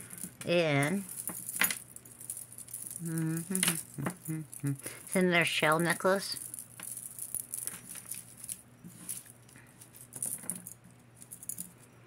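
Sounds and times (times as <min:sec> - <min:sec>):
beads and jewelry clicking: 0:00.0 - 0:05.2, 0:05.8 - 0:11.9.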